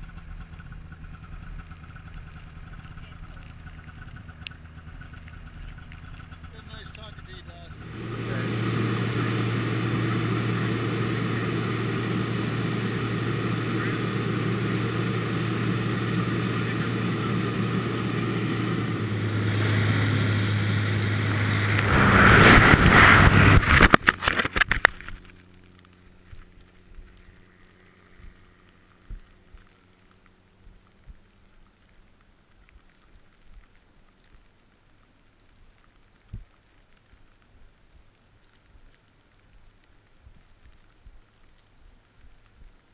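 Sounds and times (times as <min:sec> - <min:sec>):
propeller aircraft engine droning: 0:00.0 - 0:32.5
faint wind buffeting: 0:07.8 - 0:24.0
rush of wind with rapid fluttering: 0:07.8 - 0:31.3.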